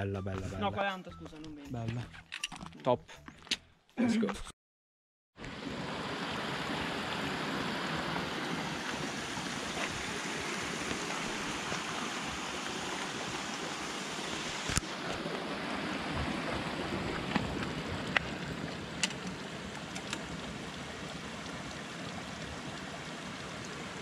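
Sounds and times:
water rushing: 5.4s - 24.0s.

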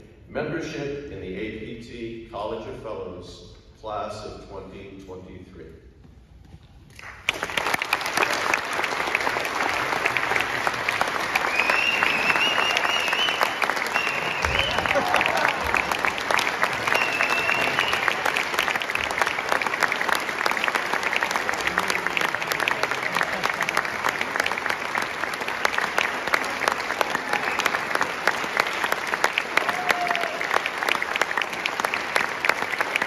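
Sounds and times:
audience applauding: 6.9s - 33.0s.

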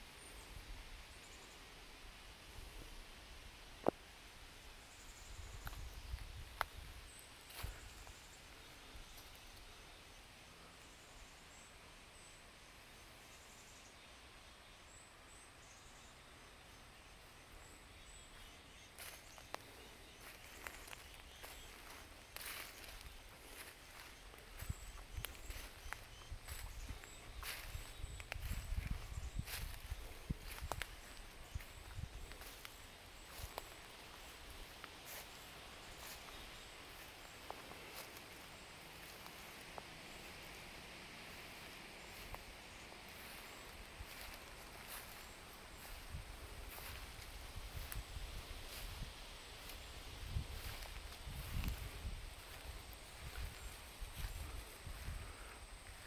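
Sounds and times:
footsteps crunching on leaves: 19.0s - 40.7s, 43.1s - 56.0s.

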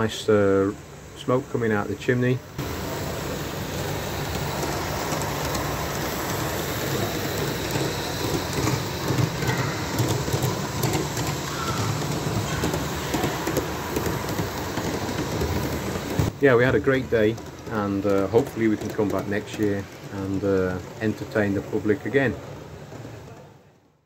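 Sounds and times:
steam hissing: 0.0s - 23.1s.

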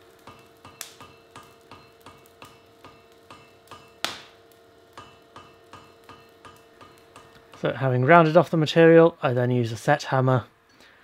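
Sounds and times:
hammer blows on iron anvil: 0.2s - 4.3s, 5.0s - 7.7s.

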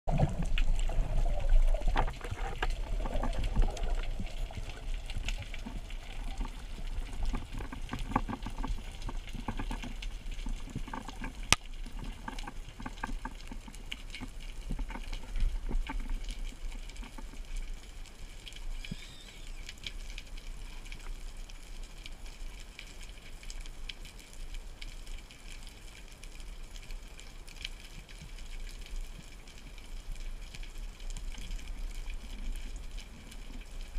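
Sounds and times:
muffled water wash: 0.1s - 18.8s
underwater clicks and crackles: 0.1s - 33.9s.

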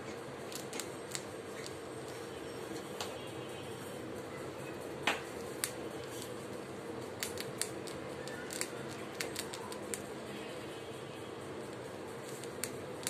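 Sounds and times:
rat crunching hard food: 0.4s - 2.2s, 5.0s - 6.4s, 7.0s - 10.5s, 11.7s - 13.0s.

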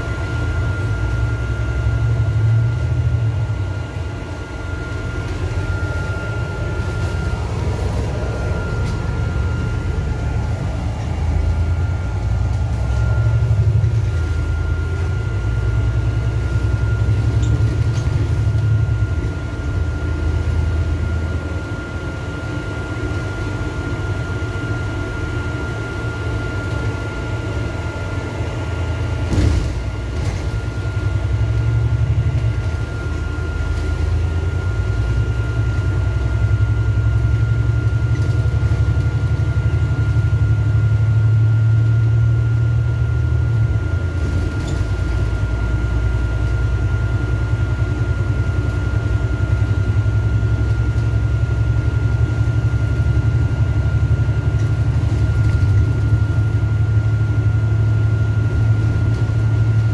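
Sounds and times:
thin high whine: 0.0s - 23.3s
bus engine and road drone: 0.0s - 59.9s.

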